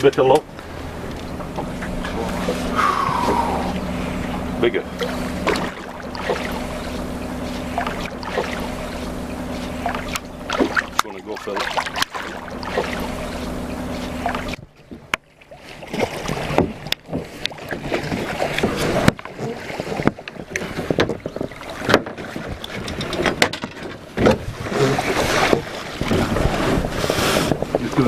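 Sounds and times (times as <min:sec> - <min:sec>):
knocks and thumps against boat: 0:00.0 - 0:28.0
water sloshing: 0:00.0 - 0:28.0
low hum: 0:00.4 - 0:17.0.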